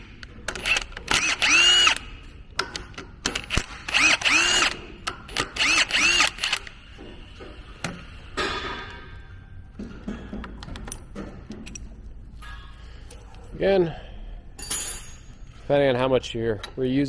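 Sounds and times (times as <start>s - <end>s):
cordless drill motor whirring: 0.6s - 2.1s, 3.6s - 4.8s, 5.4s - 6.7s.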